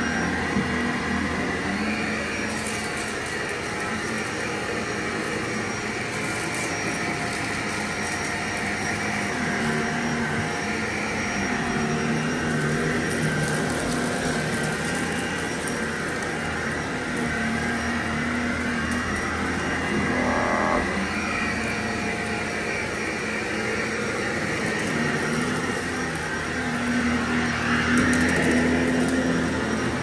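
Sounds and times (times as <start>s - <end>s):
vacuum cleaner running: 0.0s - 30.0s.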